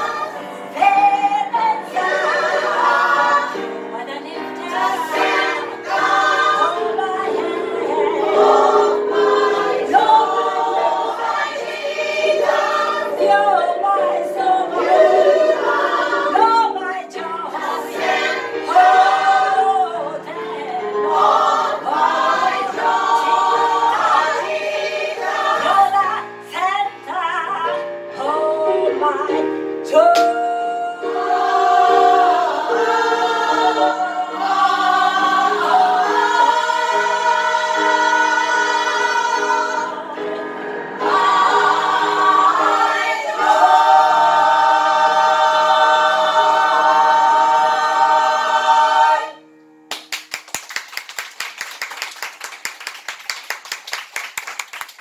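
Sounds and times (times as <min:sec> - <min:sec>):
choir singing gospel song: 0:00.0 - 0:49.5
people clapping hands: 0:30.1 - 0:30.3, 0:49.9 - 0:55.0.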